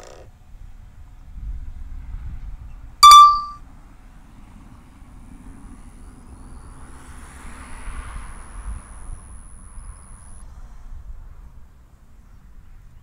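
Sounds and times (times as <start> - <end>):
loud electronic beep: 3.0 - 3.6.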